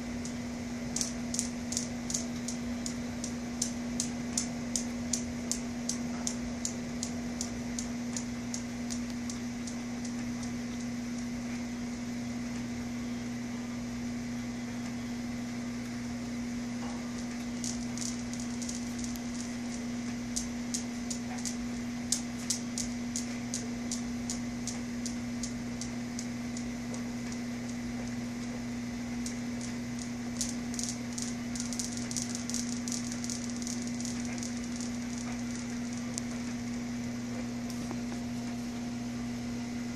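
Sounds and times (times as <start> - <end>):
low hum: 0.0 - 39.9
steel balls clacking: 0.2 - 11.4, 16.8 - 28.5, 29.1 - 36.8.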